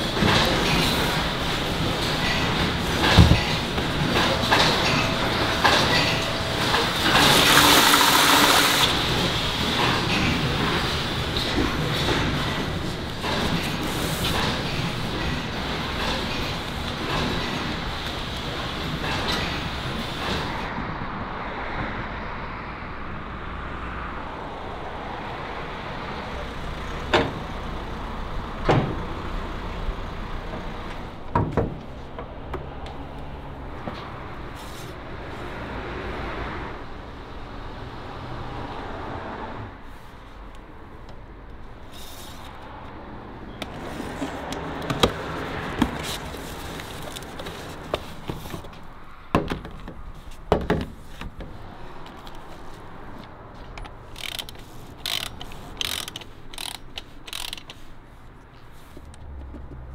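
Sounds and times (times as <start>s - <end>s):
workshop background noise: 0.0s - 20.7s, 39.8s - 59.9s
knocks and clatters of handling: 0.2s - 8.9s, 43.6s - 59.9s.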